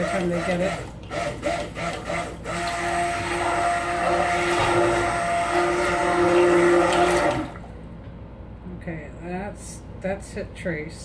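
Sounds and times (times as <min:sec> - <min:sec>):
stick blender motor whine: 0:00.0 - 0:07.7.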